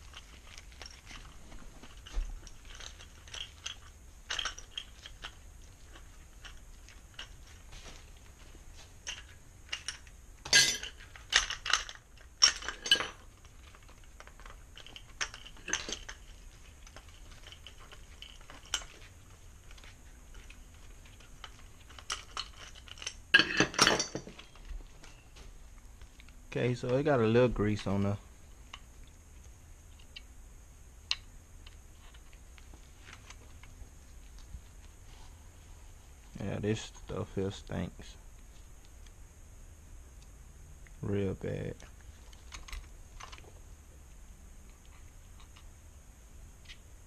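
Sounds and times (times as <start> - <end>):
metal parts clattering: 0.0 - 7.6, 9.0 - 19.0, 19.7 - 25.2
metal parts clinking: 0.0 - 7.6, 9.0 - 25.2.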